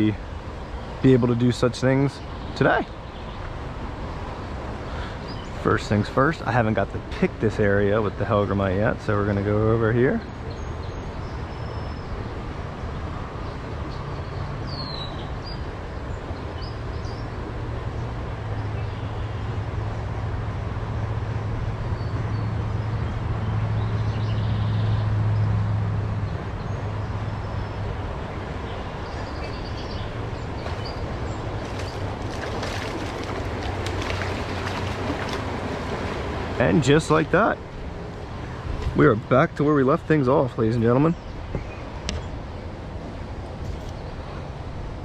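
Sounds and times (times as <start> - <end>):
distant road traffic rumble: 0.0 - 45.0
fish splashing at water surface: 31.4 - 36.6.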